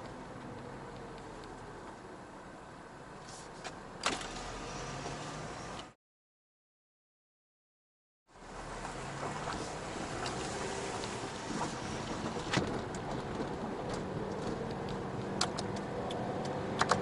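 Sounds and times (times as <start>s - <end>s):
car engine and tyre noise: 0.0s - 6.0s, 8.3s - 17.0s
sharp clicks and knocks: 12.4s - 17.0s.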